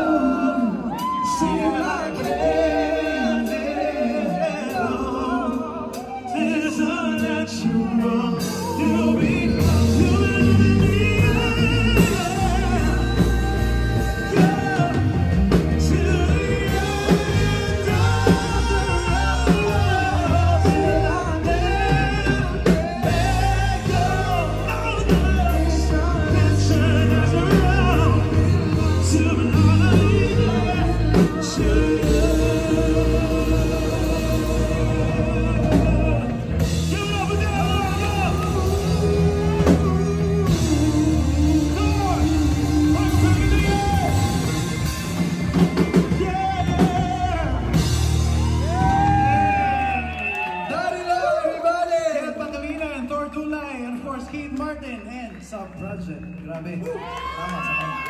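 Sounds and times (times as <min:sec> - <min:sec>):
men singing into microphones: 0:00.0 - 0:45.0
live band keyboard and drums: 0:00.0 - 0:58.0.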